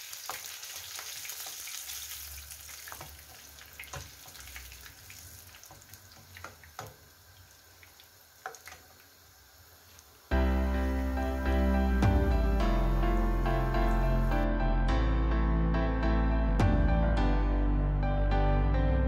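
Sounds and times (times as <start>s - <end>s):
oil sizzling in a frying pan: 0.0s - 14.4s
background music: 10.3s - 19.0s.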